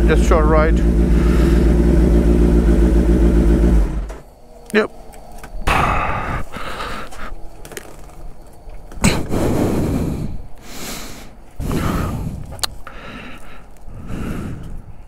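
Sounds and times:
heavy breathing: 1.0 - 1.9, 5.6 - 7.5, 9.0 - 15.0.

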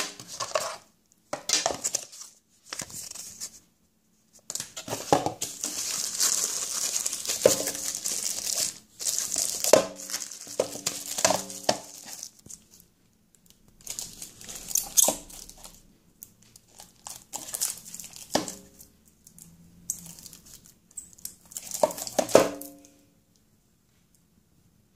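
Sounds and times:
plastic bags crinkling: 4.5 - 12.8, 13.8 - 15.8, 16.5 - 22.7.

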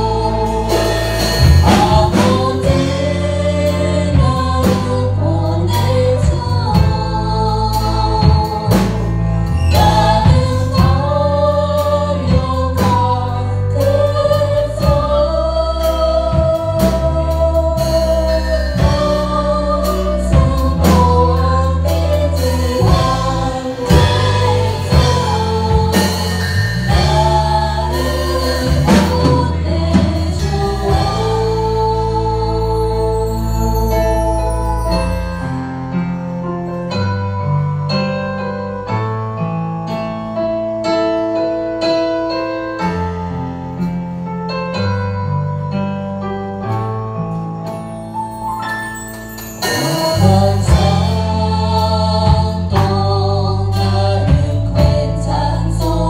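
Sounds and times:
voices singing together: 0.0 - 34.6, 49.6 - 56.0
bass line: 0.0 - 40.8, 49.2 - 56.0
acoustic guitar: 0.0 - 56.0
drums: 0.0 - 56.0
keyboard: 0.0 - 56.0.

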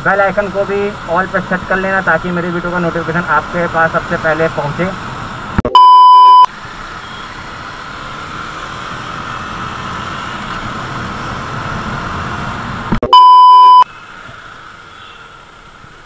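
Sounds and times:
test tone beep: 5.6 - 6.5, 12.9 - 13.8.

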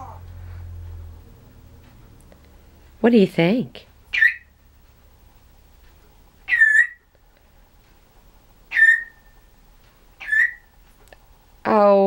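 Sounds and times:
parrot whistled call: 4.1 - 4.5, 6.5 - 7.1, 8.7 - 9.4, 10.2 - 10.7.

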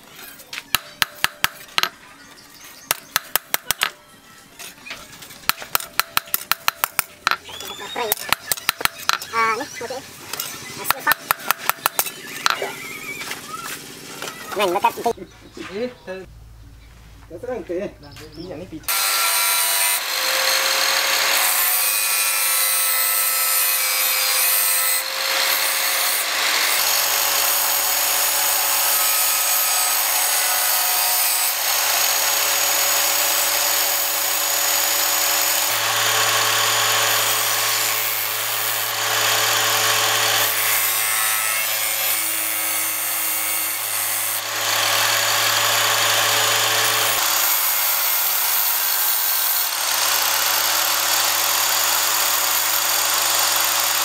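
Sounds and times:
saw motor whine: 18.9 - 54.0.

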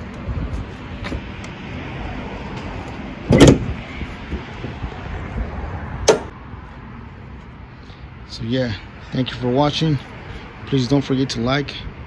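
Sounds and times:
pickup hood clunking open: 3.3 - 3.8.

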